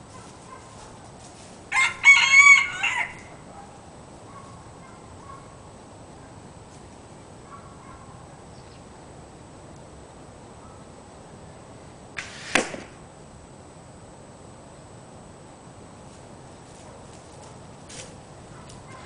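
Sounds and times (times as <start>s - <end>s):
arrow rushing: 12.2s - 13.0s
arrow striking cardboard box: 12.2s - 13.0s.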